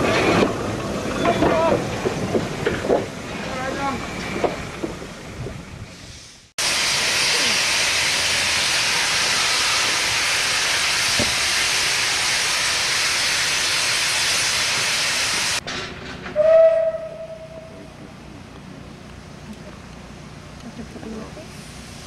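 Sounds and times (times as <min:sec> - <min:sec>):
steam locomotive hissing steam: 0:05.8 - 0:15.6, 0:21.4 - 0:22.0
steam whistle: 0:16.4 - 0:17.8.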